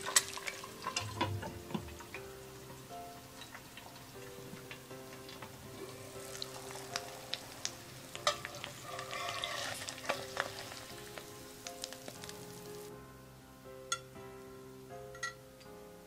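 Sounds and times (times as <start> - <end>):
egg sizzling in oil: 0.0 - 12.9
metal spatula scraping pan: 8.1 - 10.6.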